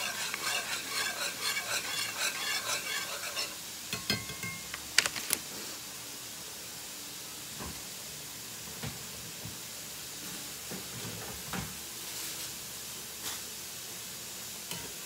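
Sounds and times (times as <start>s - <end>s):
metal spatula scraping skillet: 0.0s - 4.5s
vegetables sizzling: 0.0s - 11.0s, 11.6s - 15.0s.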